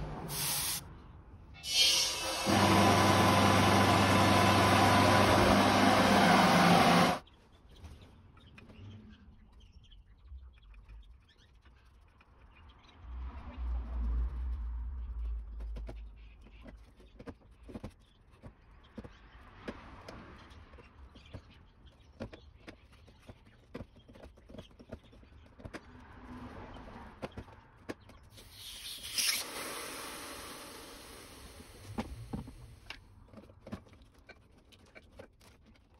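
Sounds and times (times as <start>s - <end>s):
hiss: 0.3s - 0.8s, 1.7s - 4.2s, 28.4s - 32.8s.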